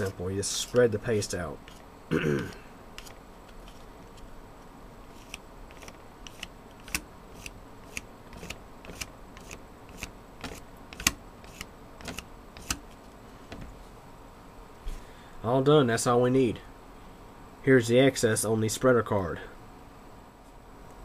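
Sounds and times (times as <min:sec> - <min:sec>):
plastic card scraping and tapping: 0:03.0 - 0:03.8, 0:05.2 - 0:12.8.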